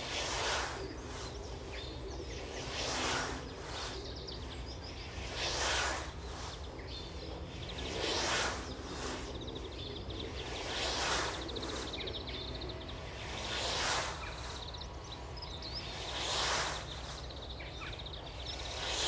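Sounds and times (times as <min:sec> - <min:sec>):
scythe swishing through grass: 0:00.0 - 0:07.2, 0:07.8 - 0:09.4, 0:10.4 - 0:12.0, 0:13.2 - 0:14.7, 0:16.0 - 0:17.4.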